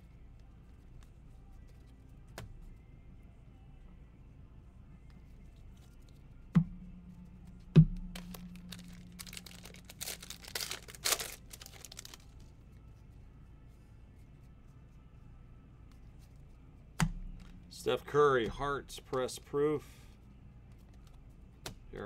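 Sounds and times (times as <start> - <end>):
wrapper crinkling and tearing: 8.2 - 12.4.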